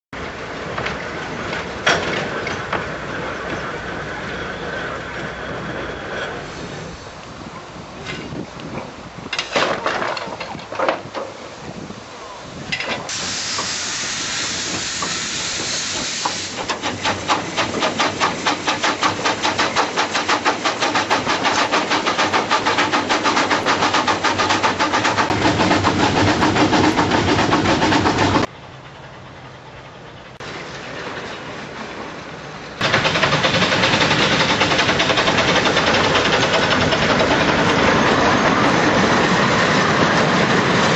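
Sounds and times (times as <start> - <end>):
train running rush: 0.2 - 40.9
steam hiss: 3.0 - 7.6, 11.4 - 28.5, 32.8 - 40.9
steam locomotive chuffing: 13.0 - 31.8, 32.8 - 40.9.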